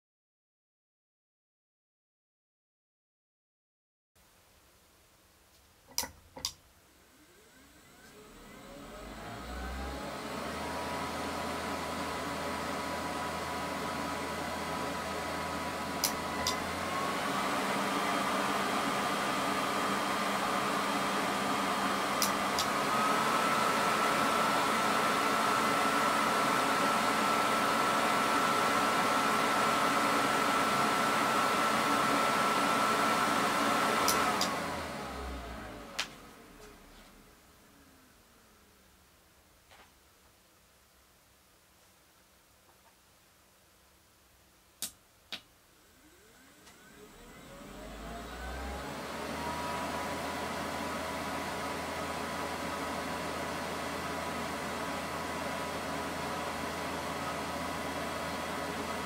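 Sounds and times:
extraction fan whining: 6.4 - 38.8, 45.8 - 59.0.

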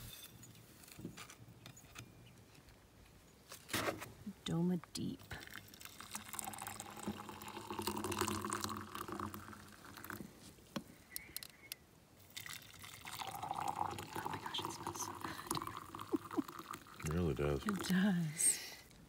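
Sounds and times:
hot water pouring into metal cup: 5.4 - 10.3, 12.3 - 18.5.

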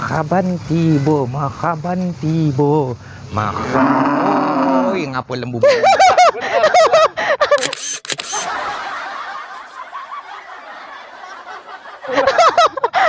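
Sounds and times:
person laughing breathily: 5.6 - 7.7, 12.0 - 13.0.

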